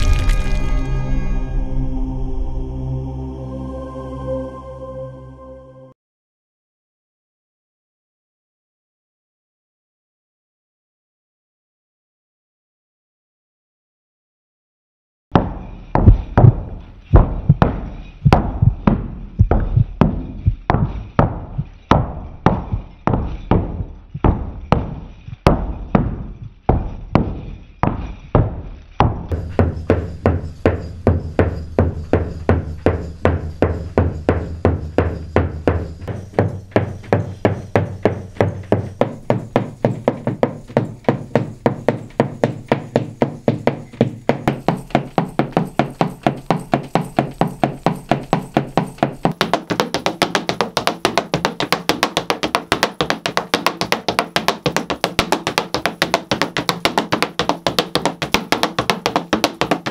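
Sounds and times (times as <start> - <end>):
low musical drone: 0.0 - 6.0
feet stamping in dance: 15.4 - 59.9.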